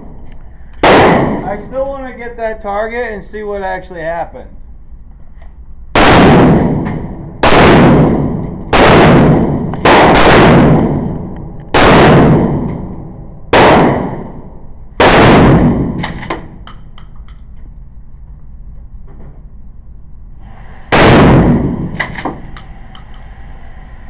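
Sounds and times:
gunshots with echo: 0:00.8 - 0:01.6, 0:06.0 - 0:14.3, 0:15.0 - 0:16.6, 0:20.9 - 0:22.4.

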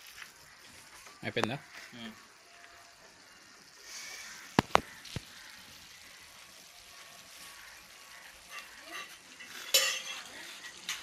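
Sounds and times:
faint hiss: 0:00.0 - 0:11.0
sharp knocks: 0:04.6 - 0:04.9.

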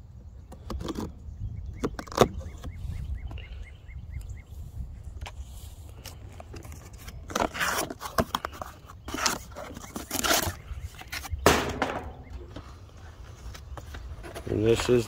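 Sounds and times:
cardboard box scraping and rustling: 0:06.1 - 0:11.4, 0:12.7 - 0:15.0.

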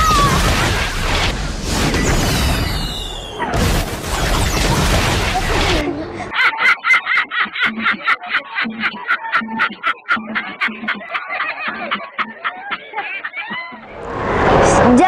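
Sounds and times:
man shrieking laugh: 0:00.0 - 0:00.7, 0:06.3 - 0:13.8
loud dense rushing noise: 0:13.8 - 0:15.0.

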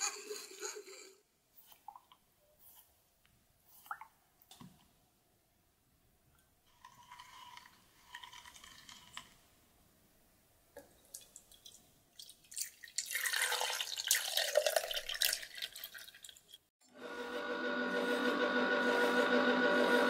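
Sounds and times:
liquid pouring and splashing: 0:11.0 - 0:16.7.

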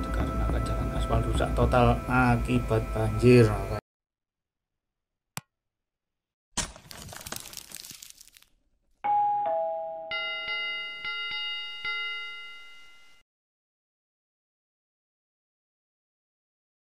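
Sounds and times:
ringing notification bell: 0:09.0 - 0:13.2
two-note doorbell chime: 0:09.0 - 0:13.2.

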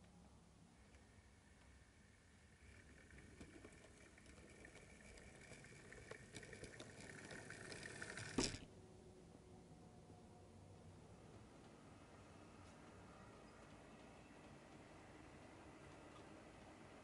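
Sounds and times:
model train motor whine: 0:00.9 - 0:08.6
wheels clicking over points: 0:01.6 - 0:08.7.

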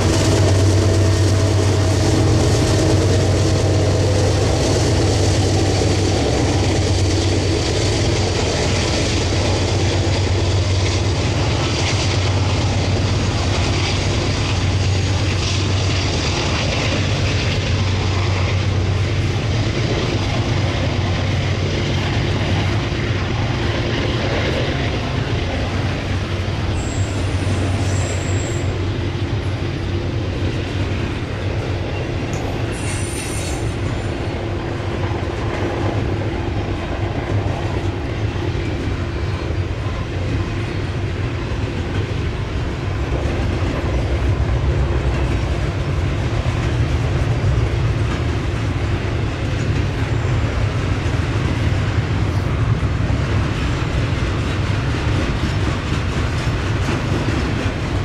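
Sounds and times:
train wheels rumbling on rail: 0:00.0 - 0:58.0
high-pitched wheel squeals: 0:26.8 - 0:28.8.

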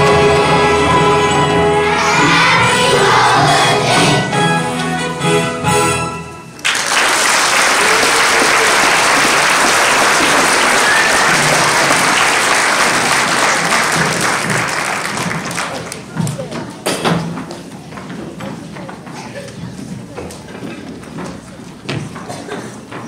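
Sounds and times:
children's choir singing: 0:00.0 - 0:05.7
audience applause: 0:06.6 - 0:16.2.

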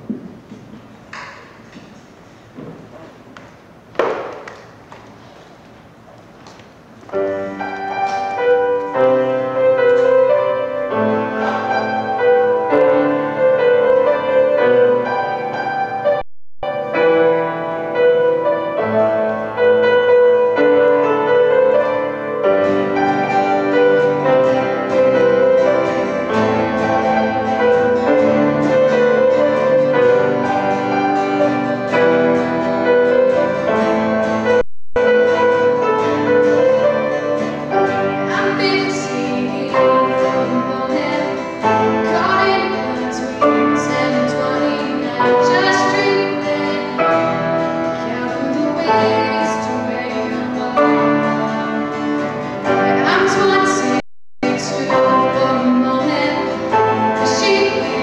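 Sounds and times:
grand piano accompaniment: 0:00.0 - 0:58.0
young female voice singing: 0:38.3 - 0:47.3, 0:48.0 - 0:51.8, 0:52.8 - 0:58.0.

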